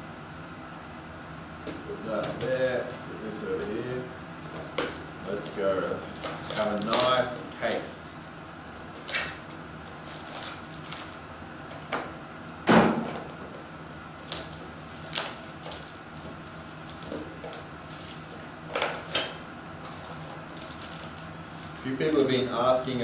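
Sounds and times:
foil card packs crinkling: 0:04.5 - 0:08.0, 0:08.9 - 0:11.9, 0:13.1 - 0:23.0.

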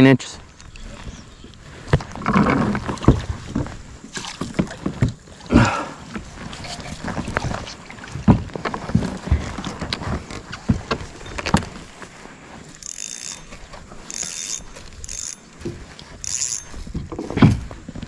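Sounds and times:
fishing reel whirring: 0:12.7 - 0:17.0.

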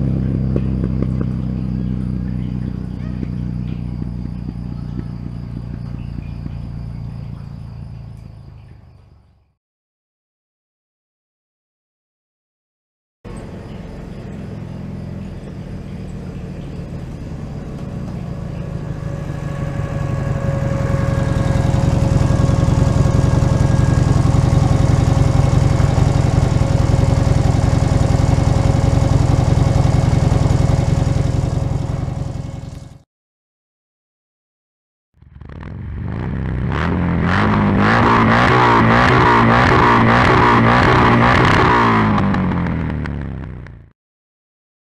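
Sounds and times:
motorcycle engine running: 0:00.0 - 0:09.5, 0:13.3 - 0:33.0, 0:35.2 - 0:43.9.

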